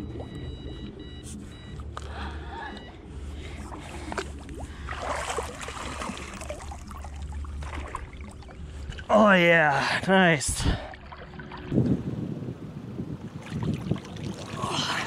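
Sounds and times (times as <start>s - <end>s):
steady low rumble: 0.0s - 15.0s
fish thrashing and splashing: 3.6s - 9.1s.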